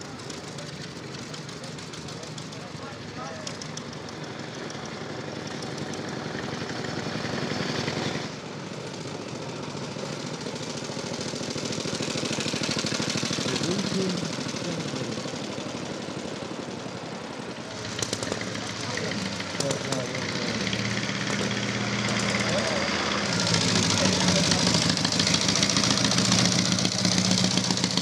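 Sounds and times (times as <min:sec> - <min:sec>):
motorcycle engine passing: 0:10.2 - 0:28.0.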